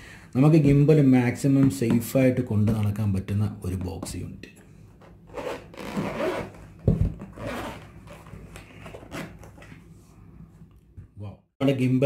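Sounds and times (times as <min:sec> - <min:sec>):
zipper scraping open: 0:05.2 - 0:09.8.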